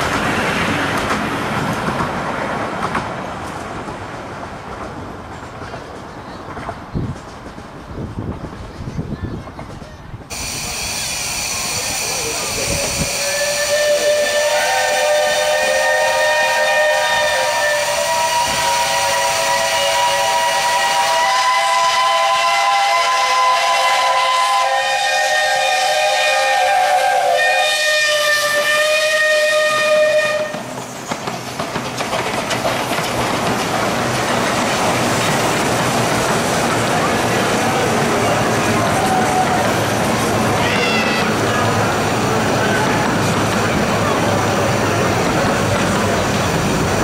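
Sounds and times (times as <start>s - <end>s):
steam train passing: 0.0s - 47.0s
steam whistles chord: 10.3s - 30.6s
steam hiss: 10.3s - 40.7s.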